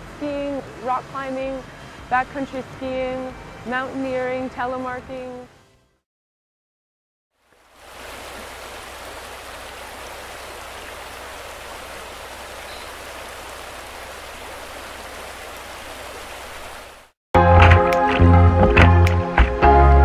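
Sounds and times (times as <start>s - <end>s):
water rushing over rock: 7.7s - 17.1s
loud music with a beat: 17.4s - 20.0s.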